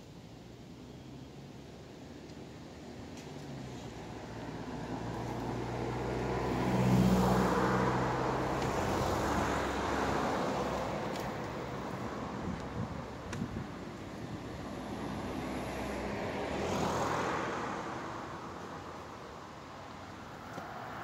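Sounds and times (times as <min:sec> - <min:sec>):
vehicle passing by: 0:02.7 - 0:21.0.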